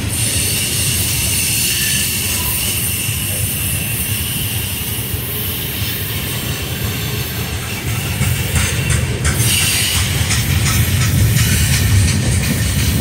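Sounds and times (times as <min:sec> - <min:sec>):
train wheels rumbling on rail: 0:00.0 - 0:13.0
high-pitched wheel squeal: 0:00.2 - 0:07.6.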